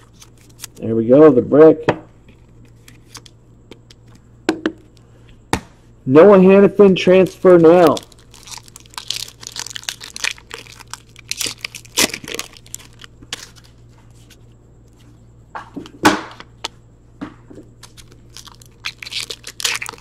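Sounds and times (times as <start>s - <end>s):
foil wrapper tearing and crinkling: 7.6s - 13.8s, 17.8s - 20.0s.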